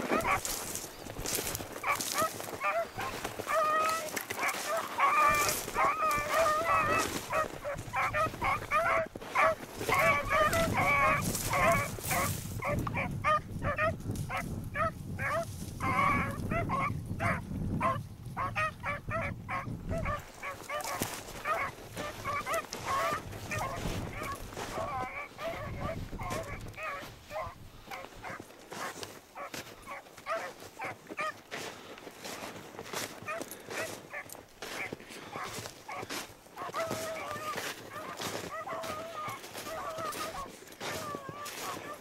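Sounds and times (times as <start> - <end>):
dogs baying: 0.0 - 42.0
wind rumbling on microphone: 5.3 - 28.5.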